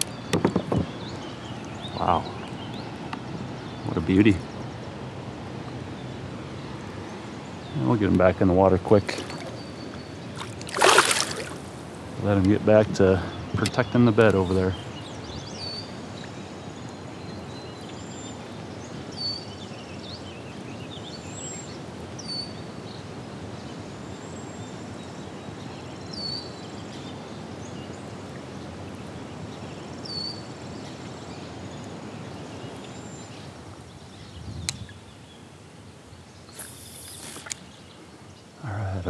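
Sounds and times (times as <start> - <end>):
small bird calling: 0.0 - 4.7, 36.4 - 39.0
outdoor background hiss: 0.0 - 39.0.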